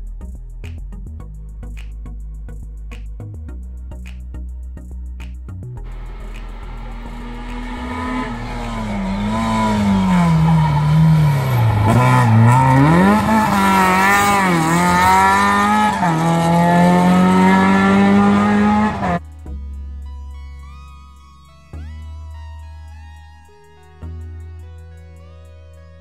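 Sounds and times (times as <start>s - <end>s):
racing car engine revving: 5.9s - 19.3s.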